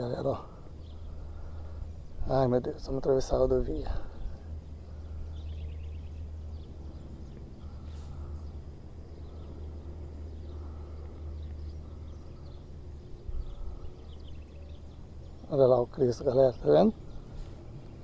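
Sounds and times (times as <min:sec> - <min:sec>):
wind buffeting microphone: 0:09.1 - 0:15.4.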